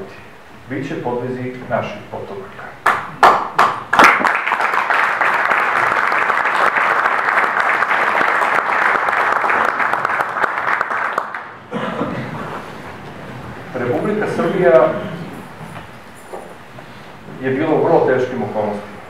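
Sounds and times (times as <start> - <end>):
audience applauding: 2.9 - 11.6.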